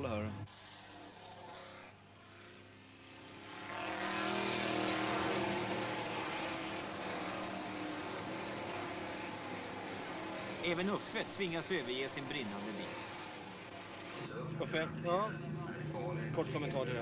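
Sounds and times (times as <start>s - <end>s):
race car engine at speed: 0.0s - 17.0s.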